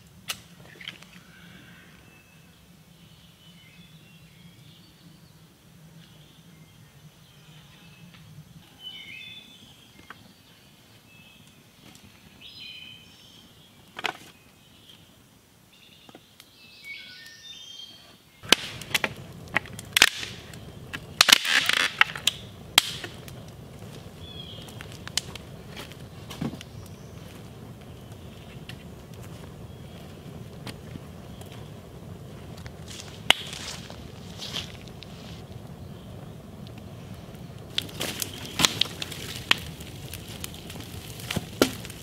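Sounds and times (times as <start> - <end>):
fire crackling and popping: 0.0 - 1.2, 18.4 - 42.0
birds chirping: 15.8 - 42.0.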